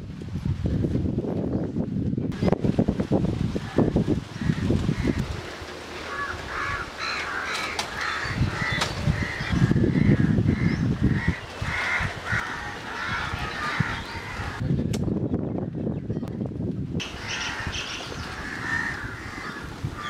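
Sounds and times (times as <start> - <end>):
crows cawing: 6.1 - 14.6, 17.0 - 20.0.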